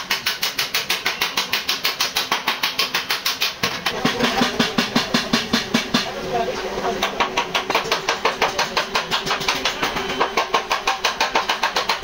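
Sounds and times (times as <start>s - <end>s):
power tool knocking rapidly: 7.0s - 12.0s.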